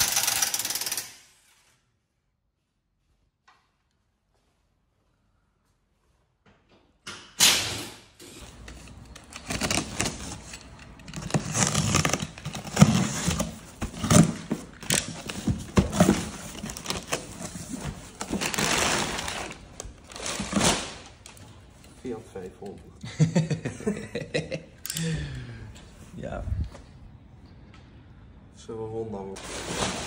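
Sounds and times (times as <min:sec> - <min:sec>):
packing paper rustling: 0:08.4 - 0:21.8.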